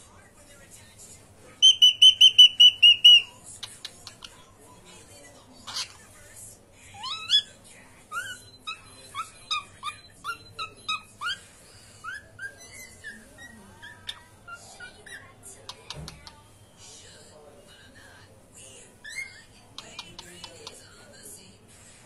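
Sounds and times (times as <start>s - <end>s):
cockatiel chirps: 1.6s - 3.3s
cockatiel whistling: 1.6s - 3.3s.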